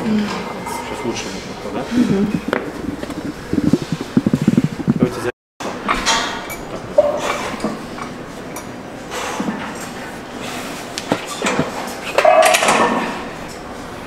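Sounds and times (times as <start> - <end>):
metal clanks of gym weights: 12.2 - 13.3.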